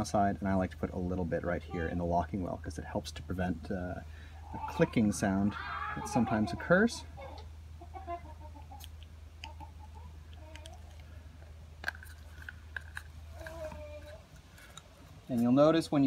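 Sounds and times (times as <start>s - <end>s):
low steady rumble: 0.0s - 16.0s
distant chickens clucking: 3.6s - 15.2s.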